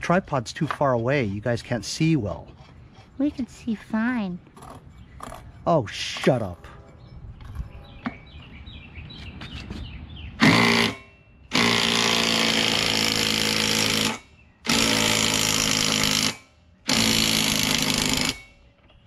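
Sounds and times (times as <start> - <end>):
impact driver hammering: 10.4 - 18.7.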